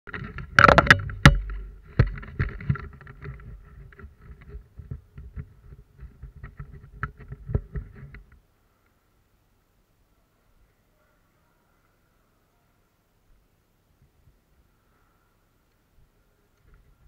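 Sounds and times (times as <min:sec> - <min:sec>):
rustling: 0:00.1 - 0:09.1
faint steady hum: 0:00.1 - 0:17.0.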